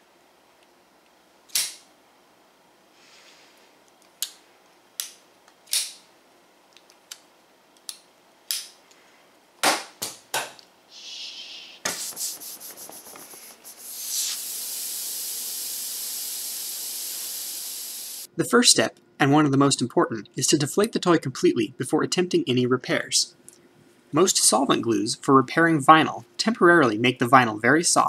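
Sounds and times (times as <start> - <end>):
air hissing out of valve: 10.9 - 18.3.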